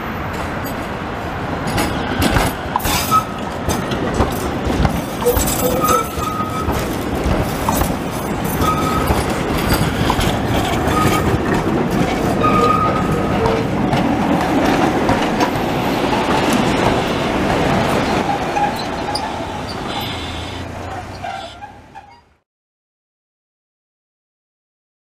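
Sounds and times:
tram wheels rumbling on rails: 0:00.0 - 0:22.4
clicks over rail joints: 0:01.7 - 0:15.7
high wheel squeals: 0:05.2 - 0:07.0, 0:08.5 - 0:09.9, 0:10.8 - 0:11.4, 0:12.4 - 0:13.6, 0:18.1 - 0:22.4.

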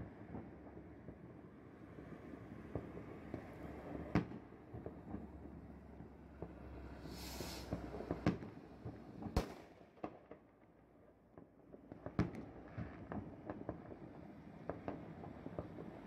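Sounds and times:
fireworks bangs and pops: 0:00.0 - 0:16.0.

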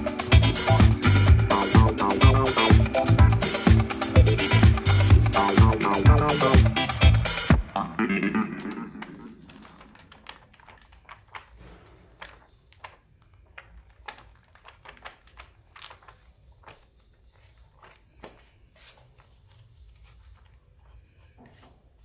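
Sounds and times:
pages being flipped: 0:08.5 - 0:22.0.

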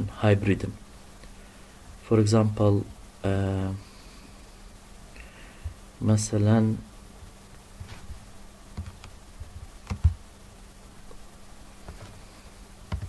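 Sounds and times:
faint steady hum: 0:00.0 - 0:13.0
computer keys clicking: 0:08.8 - 0:09.1, 0:09.8 - 0:10.2.

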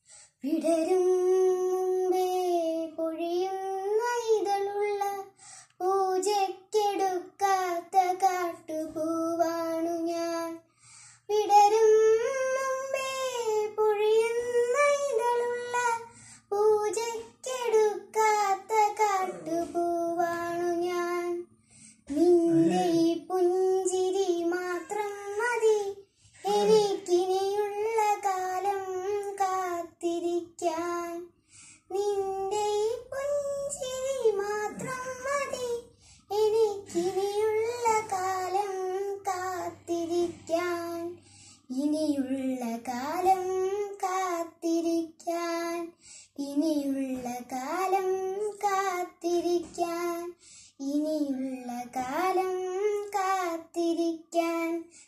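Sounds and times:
breath: 0:00.0 - 0:00.4, 0:05.4 - 0:05.8, 0:10.6 - 0:11.3, 0:16.1 - 0:16.5, 0:21.6 - 0:22.1, 0:26.0 - 0:26.5, 0:31.4 - 0:31.9, 0:35.9 - 0:36.3, 0:41.2 - 0:41.7, 0:46.0 - 0:46.4, 0:50.4 - 0:50.8
girl chanting a sung melody: 0:00.4 - 0:10.6, 0:11.2 - 0:31.3, 0:31.9 - 0:54.9
girl chanting a poem: 0:18.6 - 0:20.7, 0:22.1 - 0:23.2, 0:26.4 - 0:27.8, 0:34.3 - 0:35.8.

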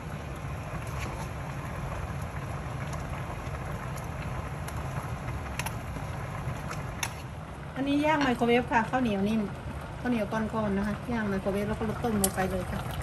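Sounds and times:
soup simmering in a pot: 0:00.0 - 0:13.0.

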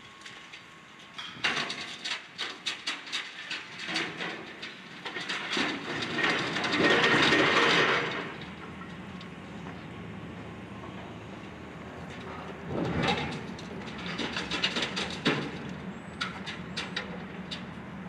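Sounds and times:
debris clattering and crashing: 0:01.2 - 0:09.0, 0:12.0 - 0:17.6.

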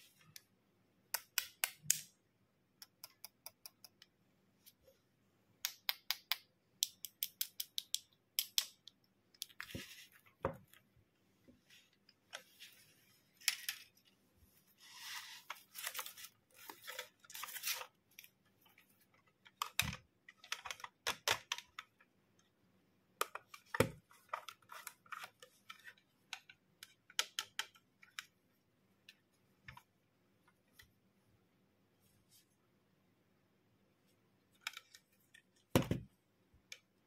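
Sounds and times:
plastic toy taps and clicks: 0:02.8 - 0:04.2, 0:05.6 - 0:09.6, 0:26.3 - 0:28.3.

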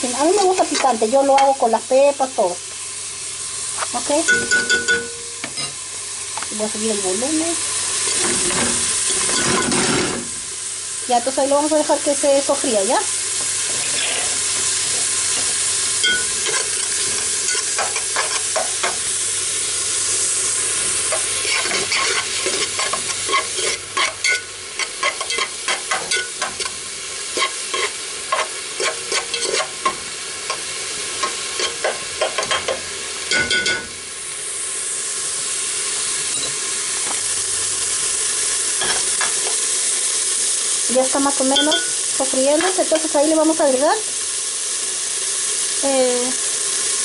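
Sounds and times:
onion sizzling in hot oil: 0:00.0 - 0:47.0
metal spoon scraping a pot: 0:09.1 - 0:10.0, 0:21.1 - 0:26.7, 0:27.4 - 0:29.8.

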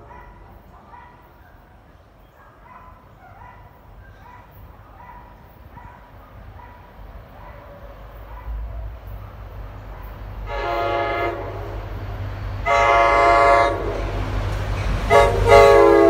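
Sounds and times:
dog yipping: 0:00.0 - 0:06.8, 0:07.4 - 0:09.4.

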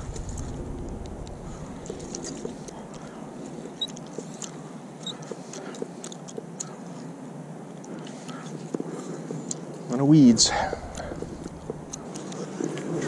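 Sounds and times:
outdoor hiss: 0:09.9 - 0:12.1.

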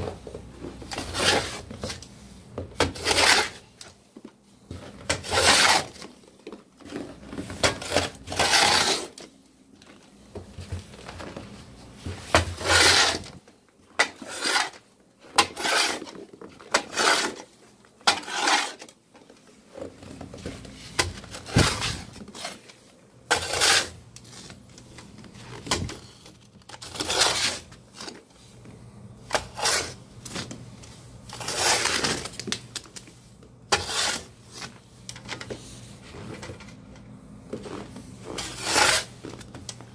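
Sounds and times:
snow shovel scraping wooden deck: 0:05.2 - 0:06.0, 0:07.2 - 0:09.1, 0:12.4 - 0:13.4, 0:15.4 - 0:16.1, 0:18.1 - 0:18.8, 0:38.3 - 0:39.2.

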